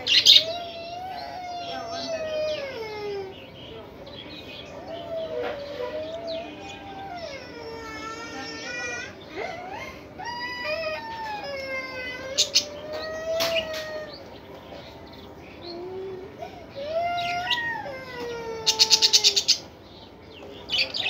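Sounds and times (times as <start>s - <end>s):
budgerigars whining calls: 0.0s - 2.6s, 18.6s - 21.0s.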